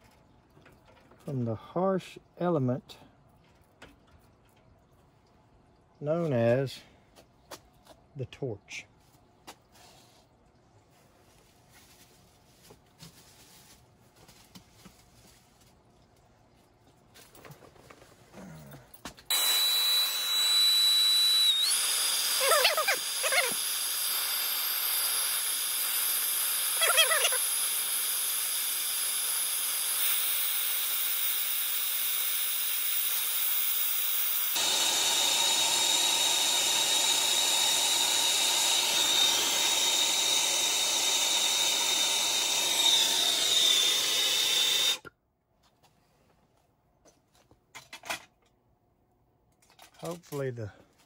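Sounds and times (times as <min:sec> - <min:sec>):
torch flame hissing: 0:19.3 - 0:45.1
warbling squeaks: 0:22.3 - 0:23.6, 0:26.6 - 0:27.5.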